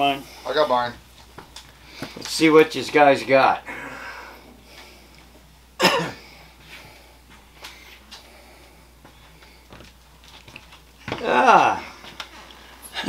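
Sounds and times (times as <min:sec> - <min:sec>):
person vocal exclamation: 0:11.1 - 0:12.0.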